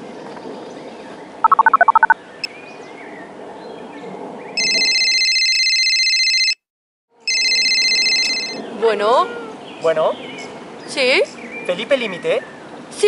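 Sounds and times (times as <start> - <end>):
phone keypad beeps: 1.5 - 2.2
telephone ringing: 4.6 - 6.6, 7.3 - 8.6.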